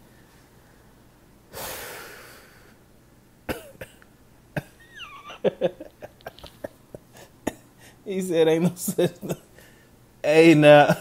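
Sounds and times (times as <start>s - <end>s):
man coughing: 3.5s - 4.0s
quiet laughter: 4.6s - 7.6s.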